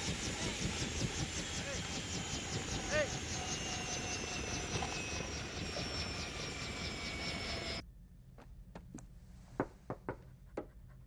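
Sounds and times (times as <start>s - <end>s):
helicopter running: 0.0s - 7.8s.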